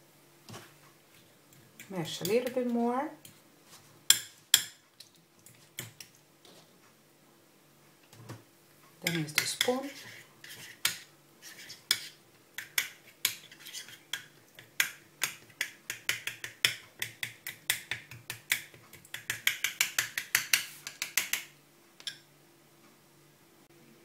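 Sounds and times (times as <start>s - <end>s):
spoon stirring paste clicking bowl: 1.5s - 3.4s, 4.1s - 6.2s, 9.0s - 22.3s.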